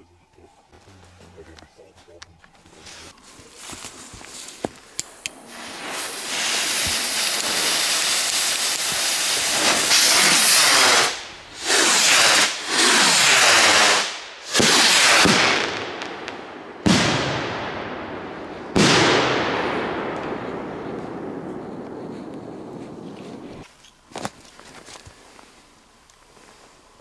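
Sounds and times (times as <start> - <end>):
firework fuses sparking: 3.9 - 16.1
firework shells bursting with echo: 4.3 - 24.3
rockets hissing on lift off: 5.0 - 15.8.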